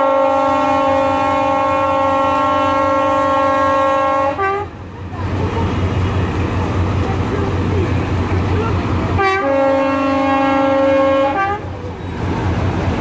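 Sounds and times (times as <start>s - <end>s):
locomotive horn blast: 0.0s - 4.8s, 9.1s - 11.9s
locomotive engine rumble: 0.0s - 13.0s
crowd voices: 4.4s - 13.0s.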